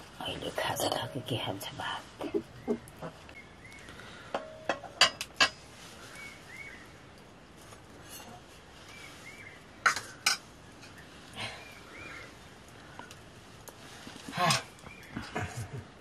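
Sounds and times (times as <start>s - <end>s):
metal utensils clinking on pots: 4.3s - 5.6s, 9.8s - 11.0s.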